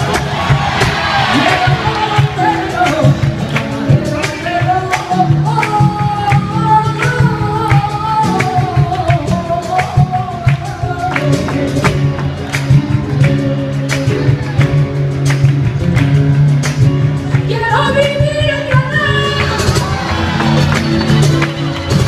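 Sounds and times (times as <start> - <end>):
flamenco piano with band: 0.0 - 22.0
woman singing: 1.3 - 12.5, 17.4 - 20.2.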